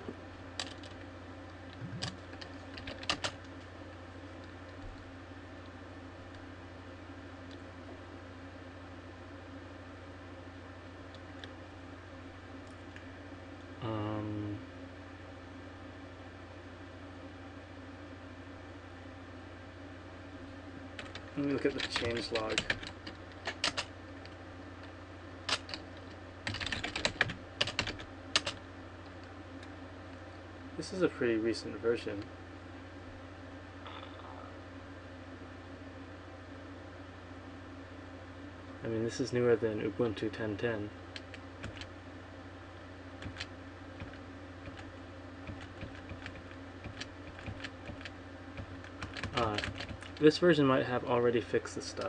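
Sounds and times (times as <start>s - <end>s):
faint low hum: 0.0s - 52.0s
keyboard typing: 1.8s - 3.4s, 21.0s - 23.9s, 25.5s - 28.6s, 41.1s - 41.9s, 43.2s - 50.2s.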